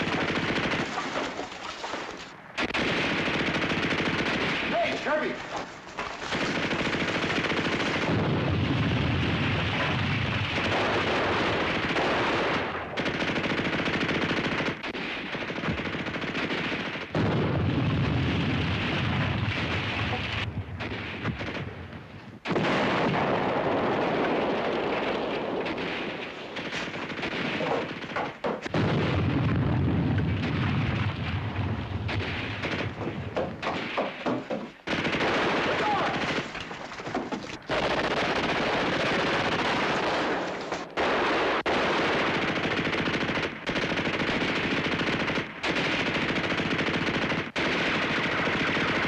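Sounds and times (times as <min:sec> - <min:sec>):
gunfire barrage: 0:00.0 - 0:49.0
explosions: 0:07.8 - 0:12.8, 0:17.1 - 0:34.2.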